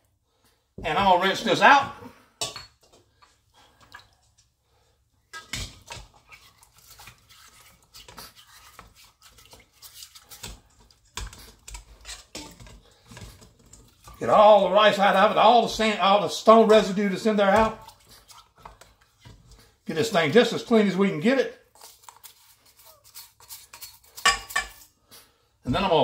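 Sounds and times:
brush scrubbing stone: 6.2s - 10.7s, 21.8s - 24.2s.

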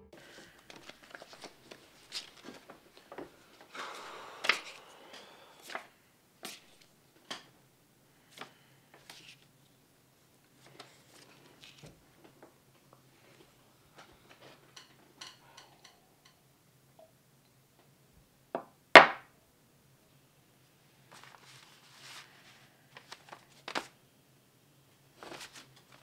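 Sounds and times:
paper shuffling: 0.2s - 3.6s, 8.2s - 9.5s, 10.6s - 12.0s, 21.0s - 24.0s, 25.2s - 26.0s.

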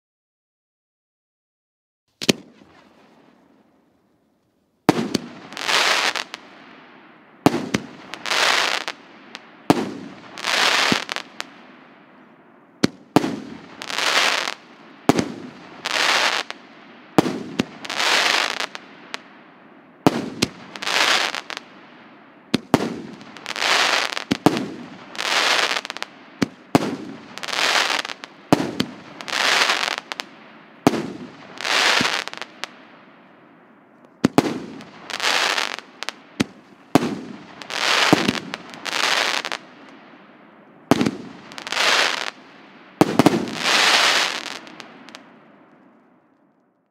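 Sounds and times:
firework launch bangs: 2.2s - 2.7s
firework aerial bursts: 4.9s - 6.8s, 7.4s - 11.6s, 12.8s - 16.6s, 17.2s - 19.2s, 20.0s - 21.8s, 22.5s - 32.8s, 34.2s - 39.7s, 40.9s - 45.2s.

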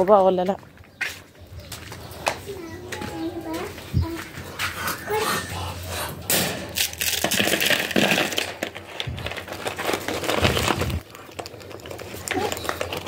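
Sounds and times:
dry bread crunching: 6.8s - 13.0s.

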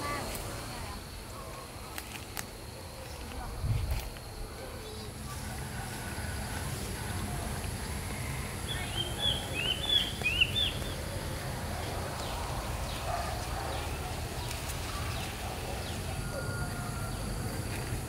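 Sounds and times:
bird chirping: 8.2s - 17.3s.

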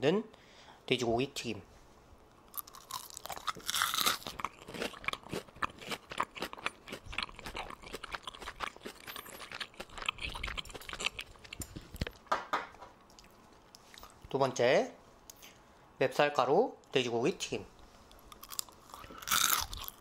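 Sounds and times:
crunchy chewing: 2.5s - 12.3s, 18.0s - 20.0s.

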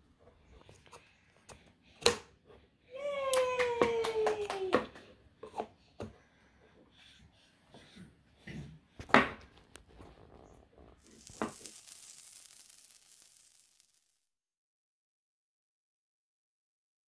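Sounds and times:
faint high hiss: 10.9s - 14.4s.

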